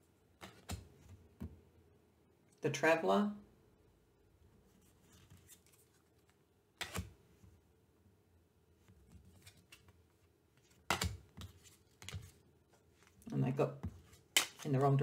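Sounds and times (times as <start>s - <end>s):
cards rustling: 4.7s - 7.2s, 9.0s - 15.0s.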